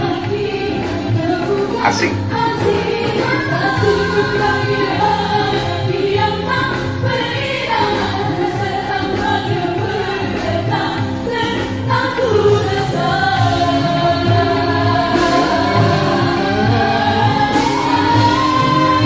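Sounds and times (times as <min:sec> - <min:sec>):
women singing together: 0:00.0 - 0:19.0
band playing: 0:01.6 - 0:06.2, 0:12.5 - 0:19.0.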